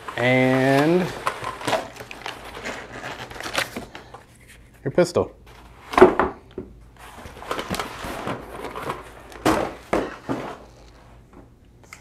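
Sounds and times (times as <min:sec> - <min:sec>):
cardboard scraping on wood: 0:00.0 - 0:04.0.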